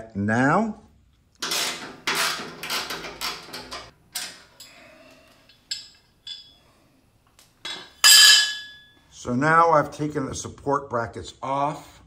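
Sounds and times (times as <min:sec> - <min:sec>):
metal parts clinking: 0:05.5 - 0:06.6.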